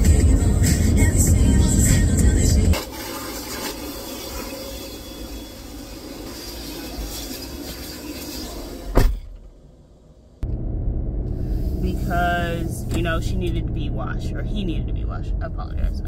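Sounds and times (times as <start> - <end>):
car road rumble: 0.0 - 16.0
vacuum hose running: 2.8 - 8.4.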